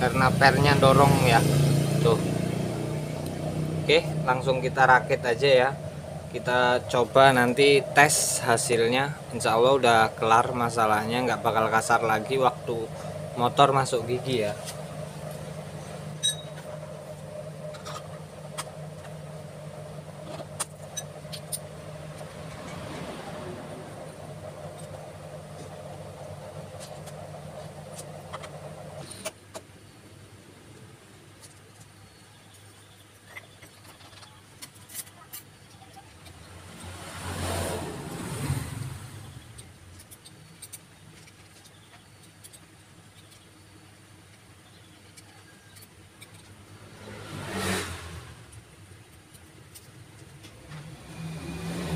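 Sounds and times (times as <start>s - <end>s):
low rumbling noise: 0.0s - 29.2s
steady low hum: 0.0s - 31.4s
small metal parts clicking: 31.4s - 37.0s, 39.4s - 46.7s, 48.5s - 50.6s.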